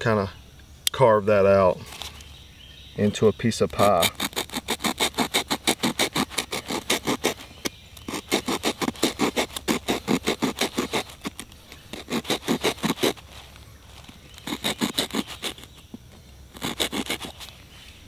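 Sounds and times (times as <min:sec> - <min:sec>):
blade scraping wood: 0:03.6 - 0:17.7.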